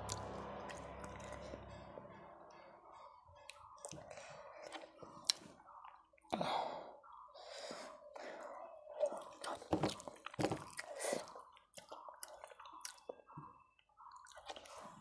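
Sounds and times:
quiet chewing: 3.4 - 15.0.

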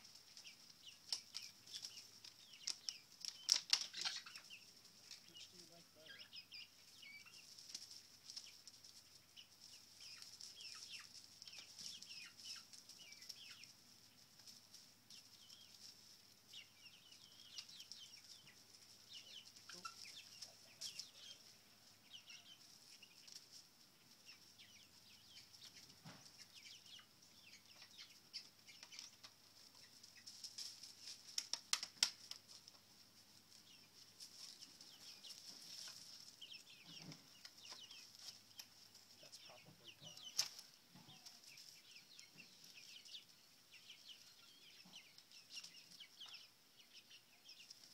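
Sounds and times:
chicks peeping and chirping: 0.0 - 47.9.

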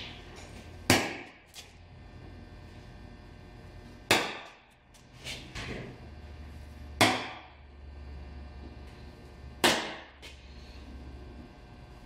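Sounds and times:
center punch striking steel: 0.9 - 1.5, 4.1 - 4.7, 7.0 - 7.6, 9.6 - 10.2.

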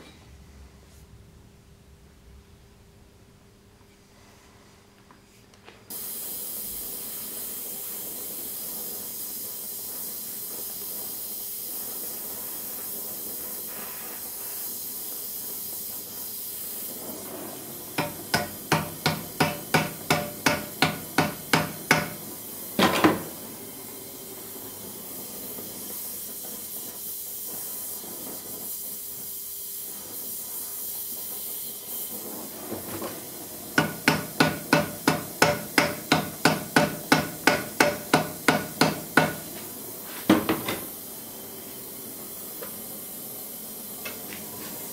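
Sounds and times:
gas torch hissing: 5.9 - 44.9
hammer blows on metal: 18.0 - 22.2, 33.8 - 39.5.

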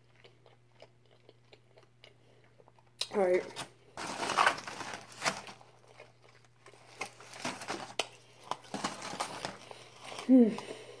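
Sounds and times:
aluminium foil crinkling: 3.0 - 11.0
paper plates rustling: 3.2 - 5.7, 6.7 - 10.8.

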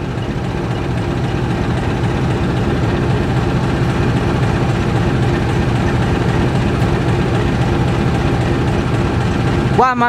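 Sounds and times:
diesel locomotive engine idling: 0.0 - 10.0.

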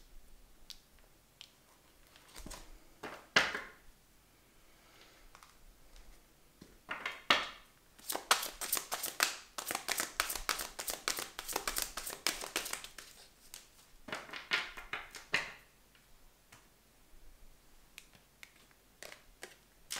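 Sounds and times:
cards being shuffled: 8.0 - 13.8.

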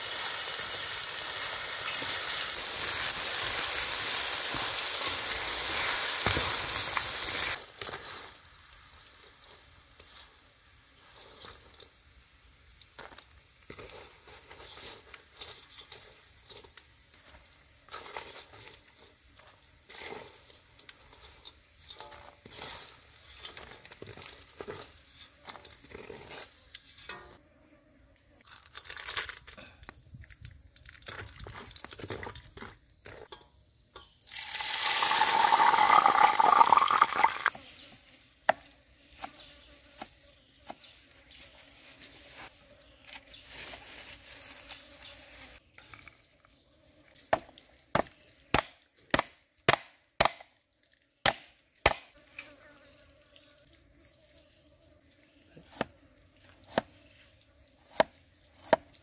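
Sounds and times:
scrapes and clicks from a wok: 0.1 - 27.4
peanuts rattling into a basket: 34.3 - 37.4
cleaver chopping on wooden block: 47.4 - 50.5, 51.3 - 52.1.

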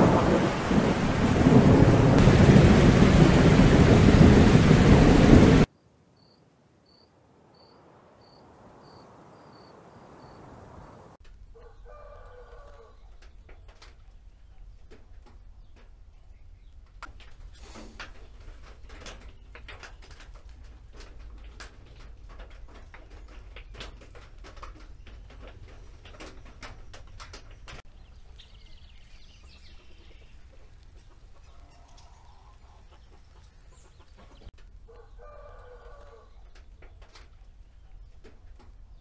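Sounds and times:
chickens clucking: 29.8 - 38.7.

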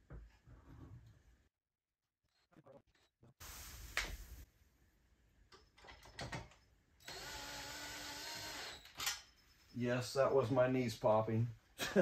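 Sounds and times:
cordless drill driving screws: 7.0 - 9.2.

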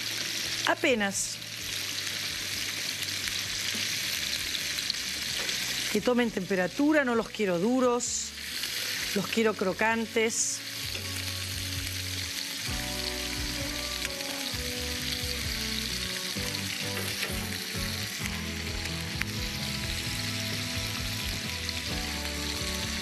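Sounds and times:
prawns sizzling in a frying pan: 0.0 - 23.0.

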